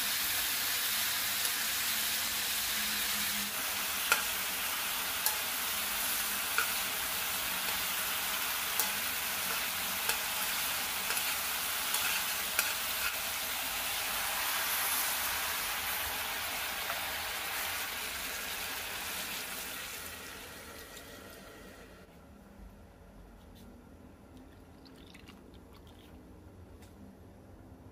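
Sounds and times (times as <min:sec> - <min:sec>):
chicken sizzling in pan: 0:00.0 - 0:22.0
utensil clicking against pan: 0:08.8 - 0:10.3.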